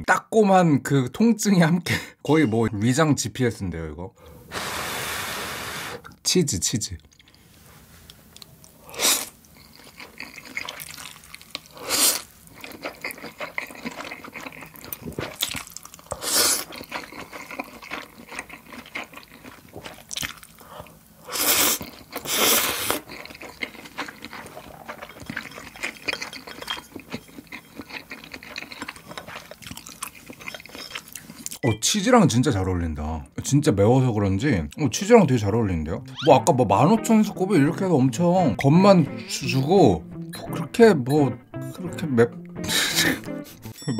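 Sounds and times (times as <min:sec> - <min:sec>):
loud noodle slurping: 0:04.5 - 0:06.1, 0:08.9 - 0:14.8, 0:16.1 - 0:18.1, 0:21.3 - 0:25.2
chewing: 0:08.3 - 0:31.6.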